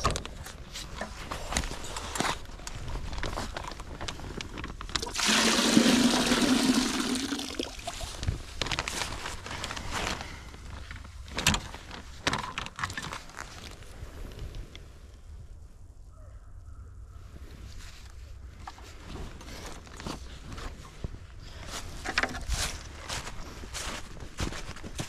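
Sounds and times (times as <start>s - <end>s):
bag handling clicks and rustles: 0.0s - 5.1s, 8.1s - 14.0s
sap pouring into bucket: 4.9s - 8.2s.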